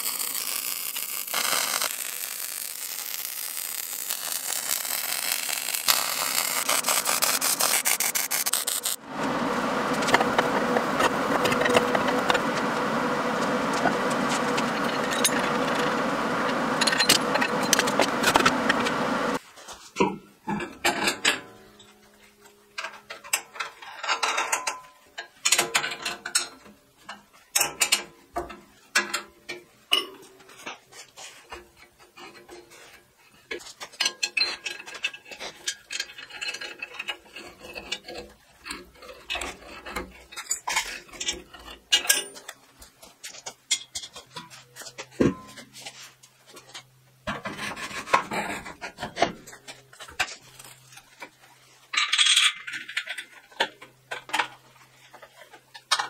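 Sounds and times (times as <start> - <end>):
arc welding crackle: 0.0 - 19.4
metal parts clanking: 16.8 - 18.4, 51.9 - 54.6.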